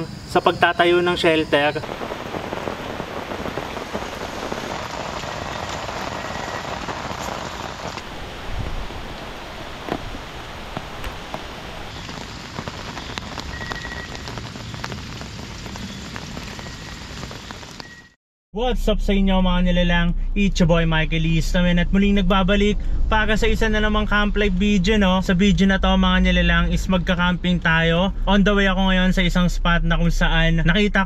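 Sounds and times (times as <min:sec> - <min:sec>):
rain falling on a tent: 0:01.8 - 0:18.2.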